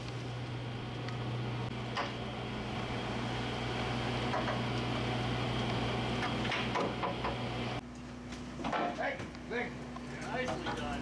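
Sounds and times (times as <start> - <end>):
boat machinery humming: 0.0 - 7.8.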